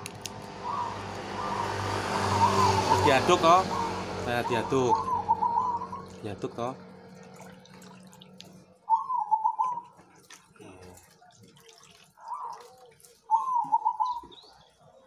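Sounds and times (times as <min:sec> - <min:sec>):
doves cooing: 0:00.5 - 0:06.6, 0:08.6 - 0:10.1, 0:12.2 - 0:14.9.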